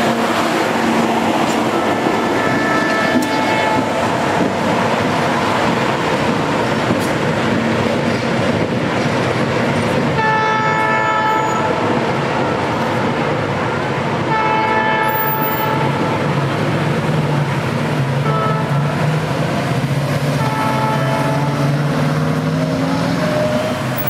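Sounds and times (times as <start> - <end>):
diesel locomotive rumbling: 0.0 - 24.0
locomotive air horn blasts: 2.3 - 4.0, 10.2 - 11.8, 14.3 - 16.3, 18.2 - 19.0, 20.4 - 21.9.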